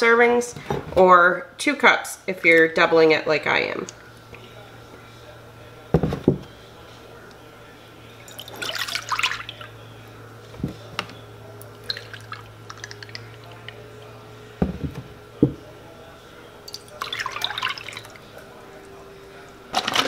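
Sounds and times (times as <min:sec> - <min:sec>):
dull knocks on a counter: 0:06.0 - 0:06.5, 0:14.6 - 0:15.6
milk pouring into a bowl: 0:08.2 - 0:09.8, 0:11.6 - 0:14.0, 0:16.6 - 0:18.9.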